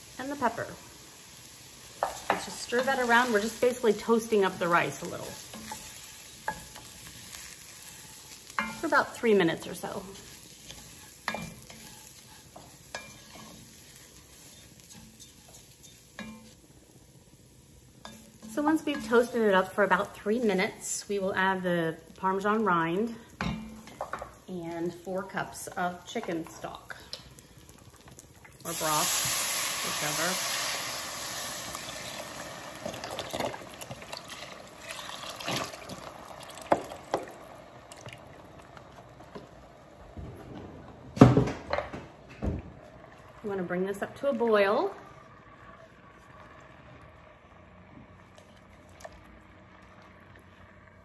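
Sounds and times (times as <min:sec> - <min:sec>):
faint sizzle: 0:00.0 - 0:51.0
wooden spoon stirring and scraping: 0:02.0 - 0:16.6
broth pouring into pot: 0:27.5 - 0:39.1, 0:42.8 - 0:51.0.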